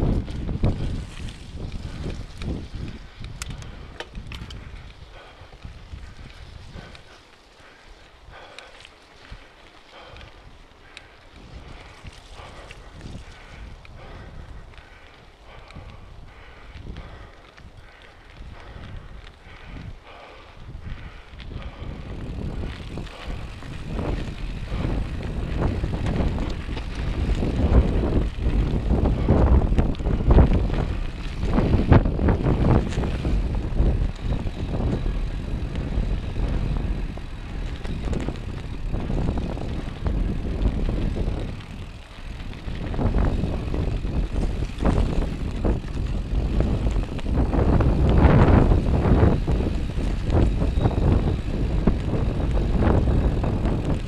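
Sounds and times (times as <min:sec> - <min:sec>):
bike rattling over bumps: 0:00.0 - 0:54.0
bike tyres rolling on dirt: 0:00.0 - 0:54.0
wind rumbling on microphone: 0:00.0 - 0:54.0.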